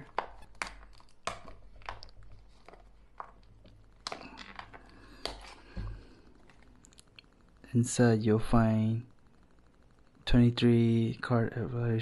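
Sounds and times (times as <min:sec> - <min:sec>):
cellophane crinkling and tearing: 0:00.0 - 0:05.6.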